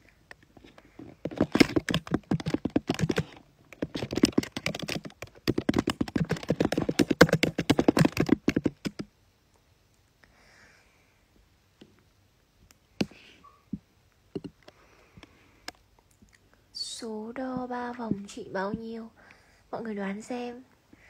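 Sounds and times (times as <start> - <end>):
fingers typing on a touchscreen: 1.3 - 9.1.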